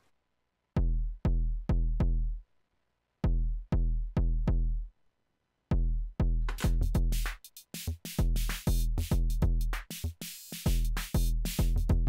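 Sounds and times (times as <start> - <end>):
distorted kick drum thumps: 0.8 - 2.4, 3.2 - 4.8, 5.7 - 12.0.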